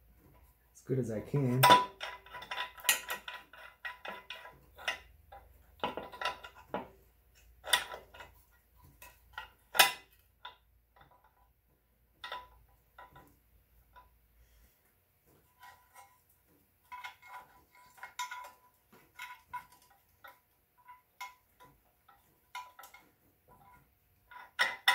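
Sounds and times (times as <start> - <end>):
steel parts clinking on metal: 1.4 - 5.1.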